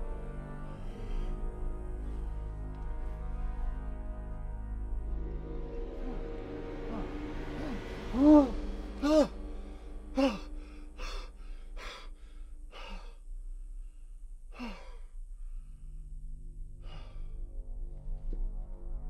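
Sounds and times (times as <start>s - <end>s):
low droning music note: 0.0s - 12.4s
man sighing and breathing heavily: 6.0s - 13.3s, 14.4s - 16.0s, 16.8s - 17.4s.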